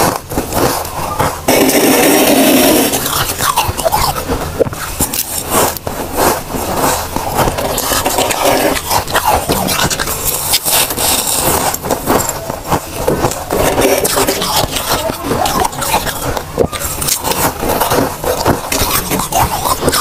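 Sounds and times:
frost crunching when bitten: 0.0s - 5.9s, 6.7s - 12.4s, 13.0s - 20.0s
metal spoon scraping frost: 0.7s - 12.4s, 13.5s - 20.0s.

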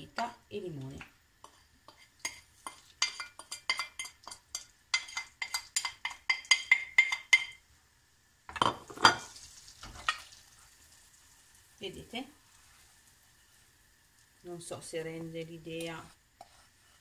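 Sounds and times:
wooden spoon clinking on ceramic plate: 2.3s - 7.6s.

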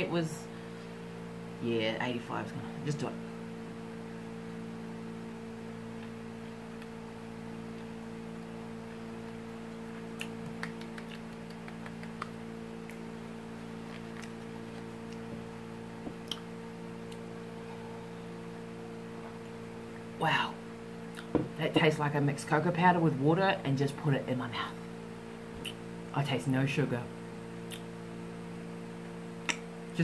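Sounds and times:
electrical hum: 0.0s - 30.0s
mouth clicks and lip smacks: 9.7s - 13.1s, 16.2s - 16.5s, 25.6s - 25.8s, 27.7s - 27.9s, 29.4s - 29.6s.

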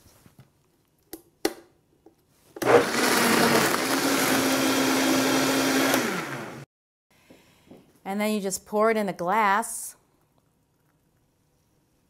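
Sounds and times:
blender motor running: 2.6s - 6.7s.

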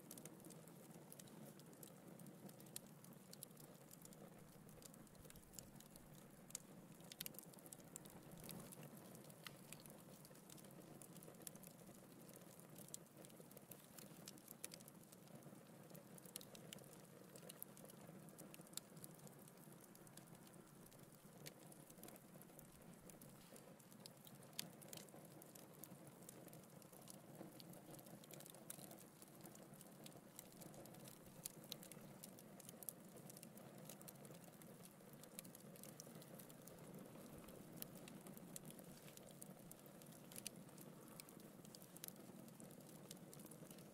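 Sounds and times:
fire crackling and popping: 0.0s - 43.9s
soft hiss of fire: 0.0s - 43.9s.

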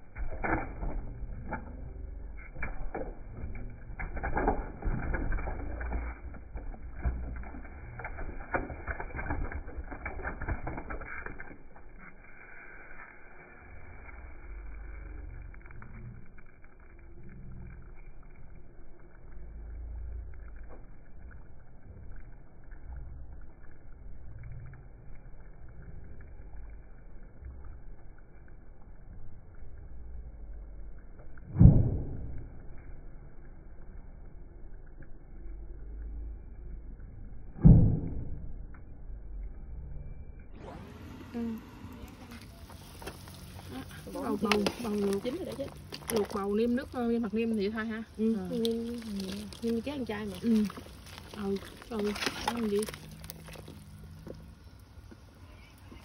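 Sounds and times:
low rumbling background: 0.0s - 10.7s, 13.5s - 56.0s
vegetable slices splashing into water: 48.2s - 54.1s.

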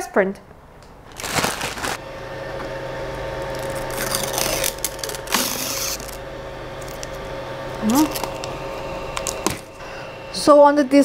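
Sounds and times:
fan humming: 0.5s - 11.0s
rustling handling noises: 1.1s - 2.0s.

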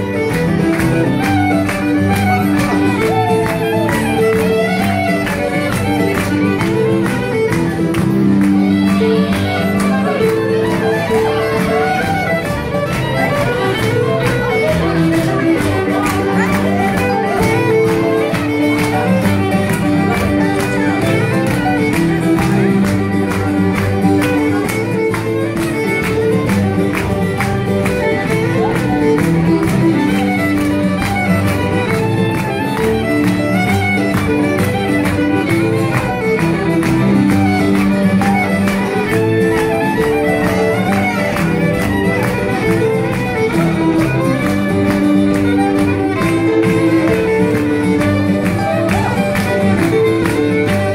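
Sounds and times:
acoustic guitar: 0.0s - 50.9s
fiddle: 0.0s - 50.9s.

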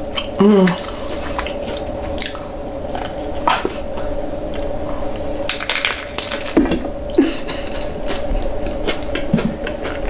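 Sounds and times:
steady hum: 0.0s - 10.0s
crunching of a hard taco shell: 5.4s - 6.7s.

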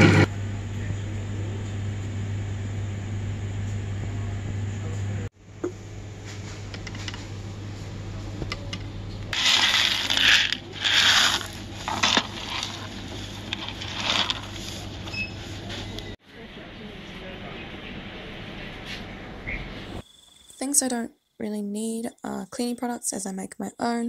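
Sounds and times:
dried peas rattling into a bag: 9.4s - 14.8s.

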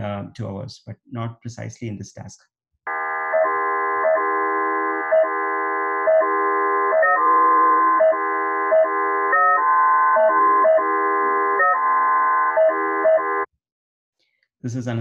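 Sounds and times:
electronic tone chord: 2.9s - 13.5s.

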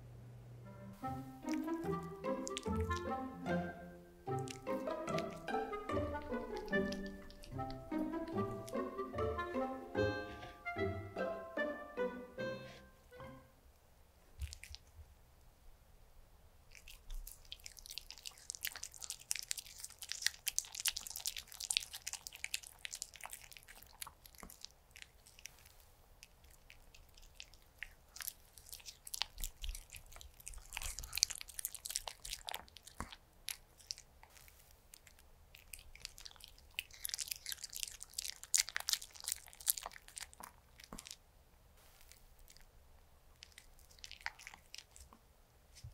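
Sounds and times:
dog chewing and crunching: 1.5s - 3.3s, 4.3s - 9.1s, 14.4s - 15.0s, 16.7s - 41.2s, 41.8s - 45.9s.

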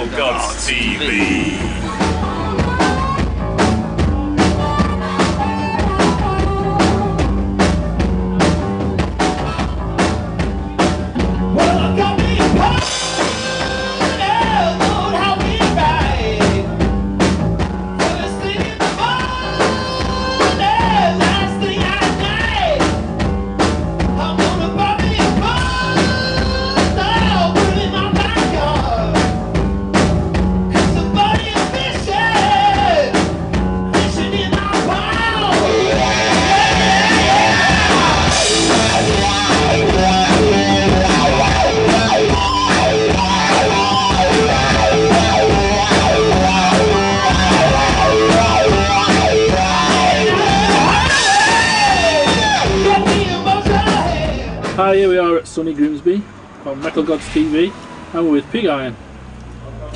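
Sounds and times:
person singing: 0.0s - 3.3s, 18.0s - 22.9s, 24.2s - 29.3s, 30.7s - 33.3s, 33.9s - 54.6s
drum kit beat: 0.0s - 55.1s
rock band playing: 0.0s - 55.2s.

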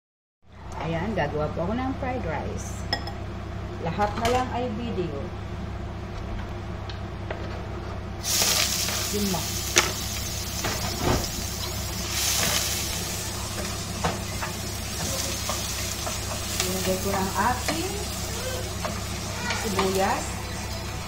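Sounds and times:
hot oil sizzling in a frying pan: 8.2s - 21.0s.

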